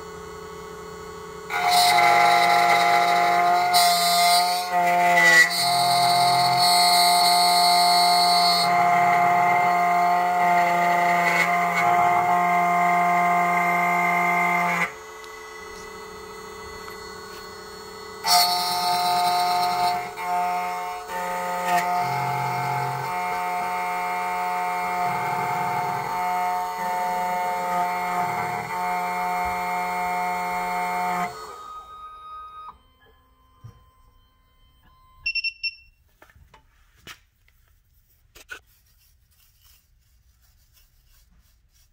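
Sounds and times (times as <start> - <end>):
key cutting machine motor whine: 0.0 - 35.2
short high beeps: 31.8 - 36.0.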